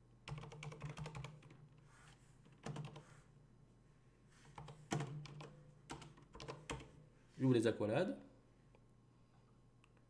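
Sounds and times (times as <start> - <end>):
typing on computer keyboard: 0.2 - 1.7, 2.5 - 3.1, 4.5 - 7.0.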